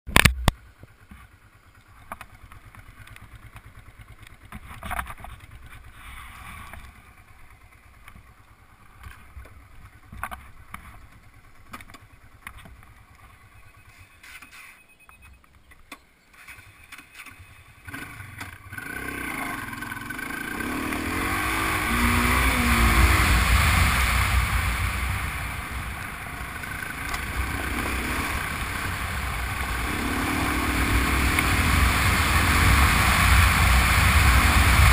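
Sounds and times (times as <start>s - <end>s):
motorcycle engine running: 0.2s - 14.0s, 17.4s - 34.9s
wind rushing over microphone: 20.7s - 34.9s.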